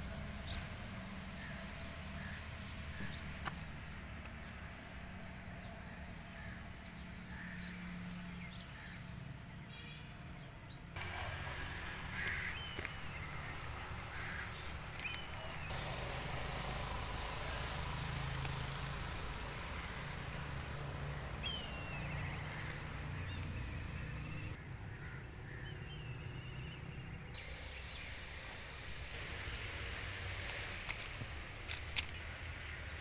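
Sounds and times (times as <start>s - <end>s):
falling bird calls: 11.0s - 26.8s.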